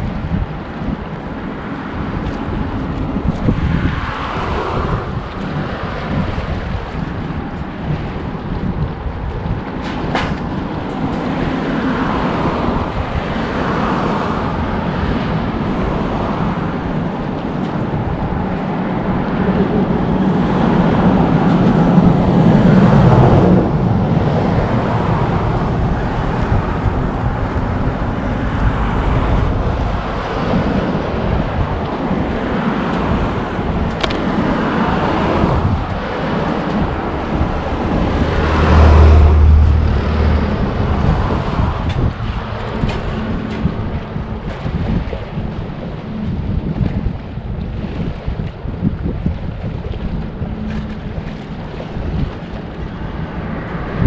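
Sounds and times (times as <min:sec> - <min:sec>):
road traffic hum: 0:00.0 - 0:54.0
wind buffeting microphone: 0:00.0 - 0:54.0
vehicle passing: 0:19.0 - 0:31.6, 0:34.1 - 0:45.0.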